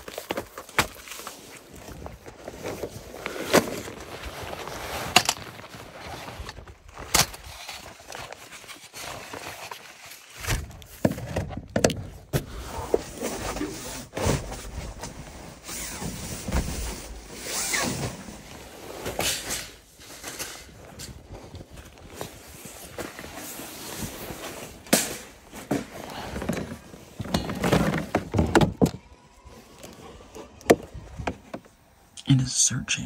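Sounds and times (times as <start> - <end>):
folding cot clicks and knocks: 24.9 - 29.1.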